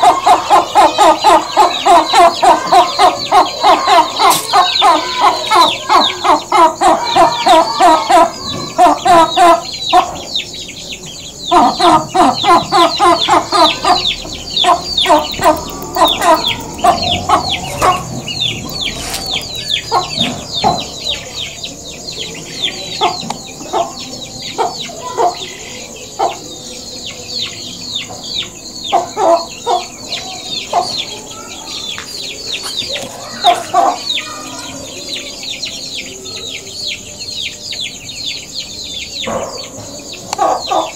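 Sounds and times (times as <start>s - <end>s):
hen clucking: 0.0s - 10.5s, 11.5s - 21.2s, 32.4s - 34.6s
high-pitched chirping: 0.0s - 40.9s.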